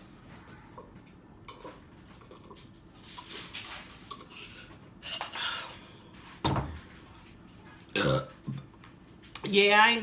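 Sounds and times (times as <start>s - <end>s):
person gulping and swallowing: 7.9s - 8.8s.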